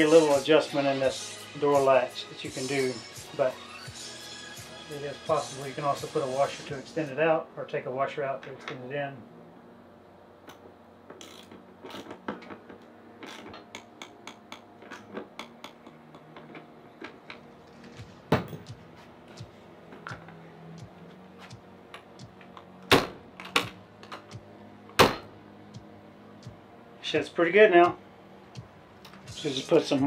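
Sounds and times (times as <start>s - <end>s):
metal door knocking shut: 25.0s - 25.3s.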